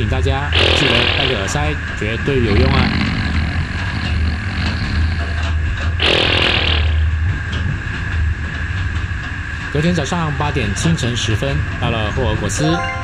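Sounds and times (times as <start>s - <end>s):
man snoring loudly: 0.6s - 1.5s, 2.4s - 7.0s.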